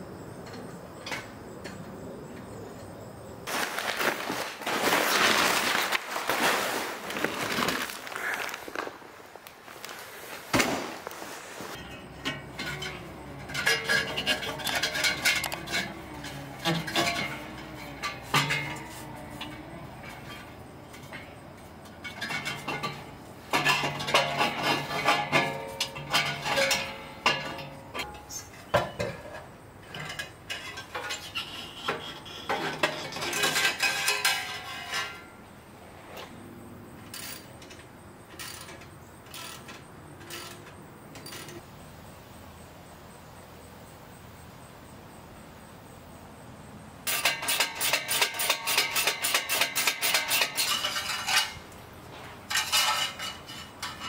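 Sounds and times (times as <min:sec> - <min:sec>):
metal exhaust pipes clanking: 0:11.7 - 0:35.6, 0:47.0 - 0:54.0.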